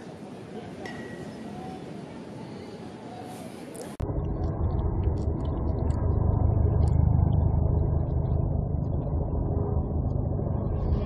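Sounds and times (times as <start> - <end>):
boat engine droning: 4.0 - 11.0.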